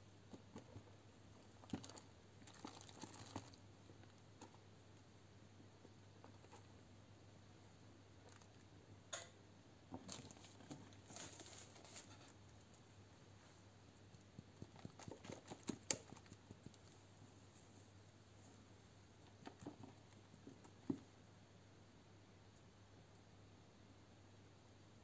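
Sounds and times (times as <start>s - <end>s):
potting soil crumbling and rustling: 1.6s - 4.2s.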